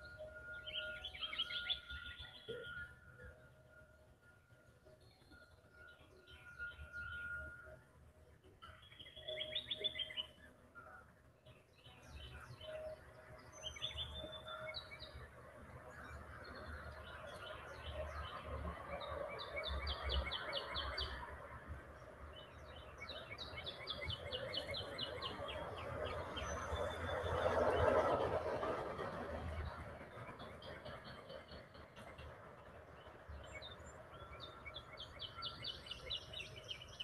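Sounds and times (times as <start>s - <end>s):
small birds chirping: 8.7s - 10.5s, 11.4s - 21.3s, 22.0s - 27.0s.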